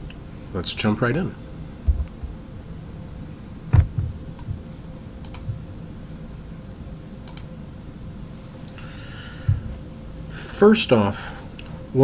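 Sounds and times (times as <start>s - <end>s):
faint steady hum: 0.0s - 12.0s
low knock: 3.7s - 4.6s
computer mouse clicks: 5.2s - 5.6s, 7.2s - 7.5s.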